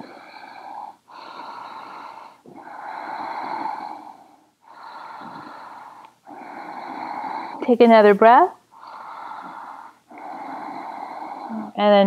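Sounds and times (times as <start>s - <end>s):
person breathing deeply: 0.0s - 7.8s, 8.7s - 11.8s.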